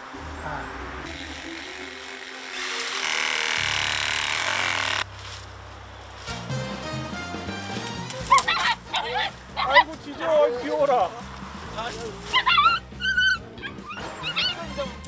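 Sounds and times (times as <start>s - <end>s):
power saw cutting branches: 1.0s - 5.5s.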